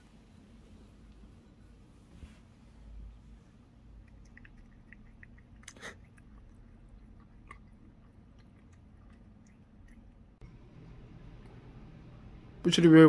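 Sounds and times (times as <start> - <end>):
cat chewing and licking: 3.9 - 10.6.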